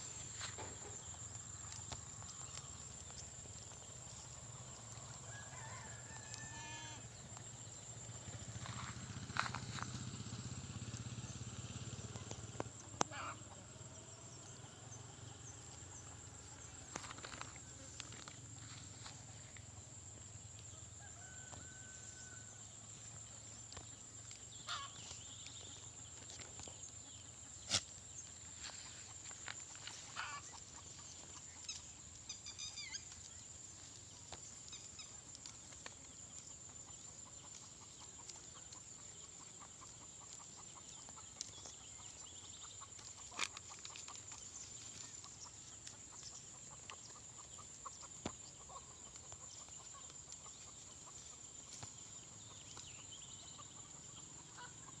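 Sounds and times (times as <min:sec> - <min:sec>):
short high animal calls: 0:06.4 - 0:07.0.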